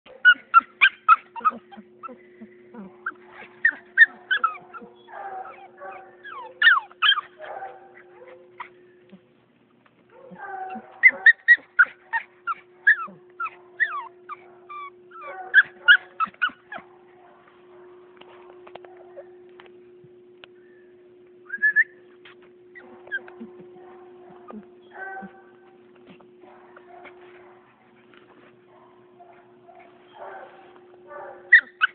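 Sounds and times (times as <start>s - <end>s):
faint steady hum: 0.1s - 31.9s
puppy whimpering and yipping: 0.2s - 7.4s, 10.3s - 16.8s, 22.8s - 23.7s, 24.3s - 25.5s, 31.5s - 31.9s.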